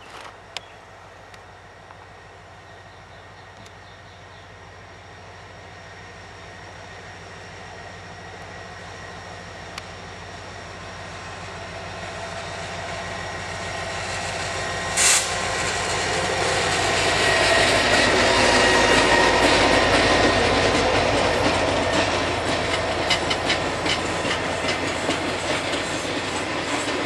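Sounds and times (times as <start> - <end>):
diesel locomotive engine running: 0.0 - 27.0
sharp hiss: 14.0 - 16.2.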